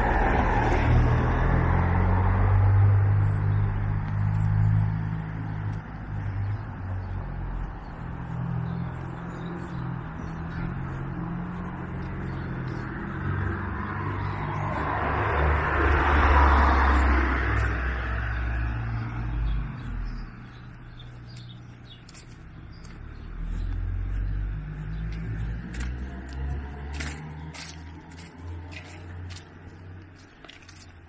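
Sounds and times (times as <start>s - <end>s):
low traffic rumble: 0.0s - 31.0s
car driving by: 6.9s - 20.4s.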